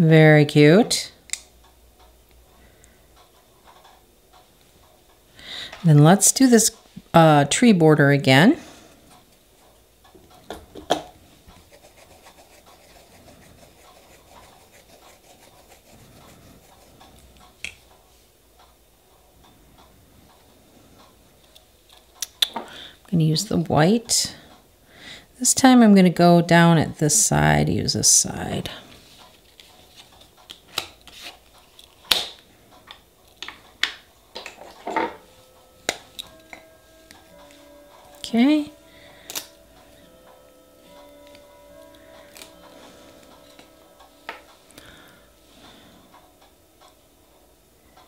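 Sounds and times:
scratchy ticking and rubbing: 0:11.6 - 0:17.6.

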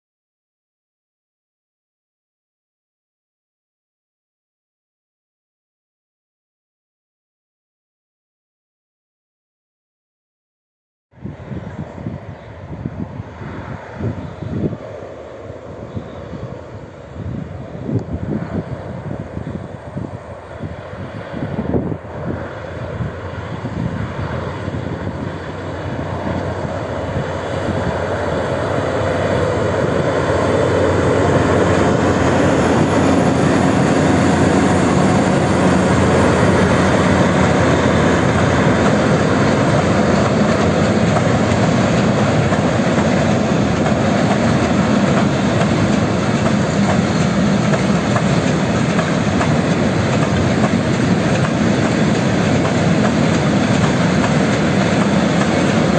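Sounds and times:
diesel locomotive engine: 0:11.2 - 0:55.9
train wheels rumbling on rails: 0:11.4 - 0:55.9.

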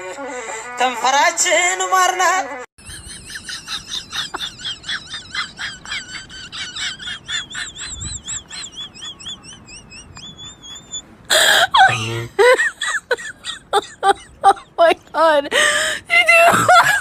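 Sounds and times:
rapid high-pitched chirping: 0:07.0 - 0:11.0
wavering whistle-like trill: 0:07.6 - 0:11.0.

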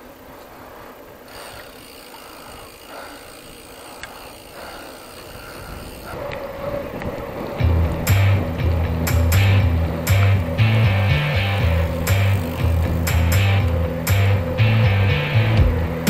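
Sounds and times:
tyre noise: 0:00.0 - 0:16.0
freewheel hub ticking: 0:00.1 - 0:16.0
wind noise: 0:04.6 - 0:16.0.

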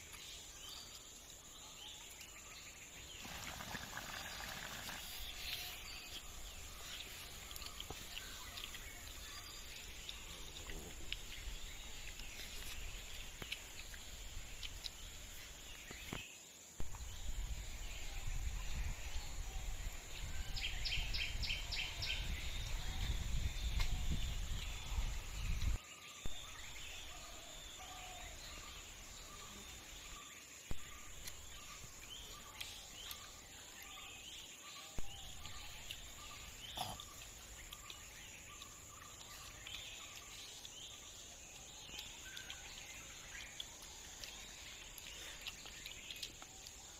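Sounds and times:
high insect hum: 0:00.0 - 0:46.9
birds calling: 0:30.7 - 0:46.8.

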